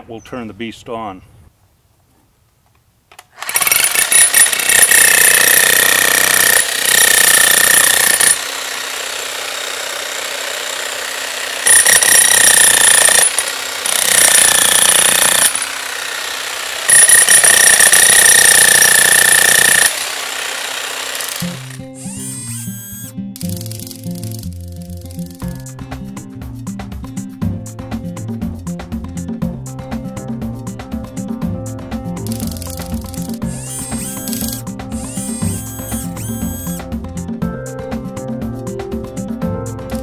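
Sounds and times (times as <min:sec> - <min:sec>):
demolition hammer hammering concrete: 0:03.6 - 0:08.5, 0:10.7 - 0:16.2, 0:16.9 - 0:21.8.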